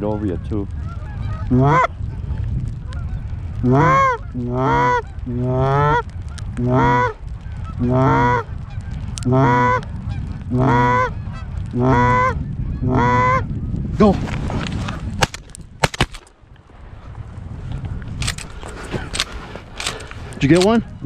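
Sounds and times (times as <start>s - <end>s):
goose call honking: 0.9s - 1.9s, 2.9s - 6.0s, 6.6s - 8.5s, 9.2s - 9.9s, 10.5s - 13.4s.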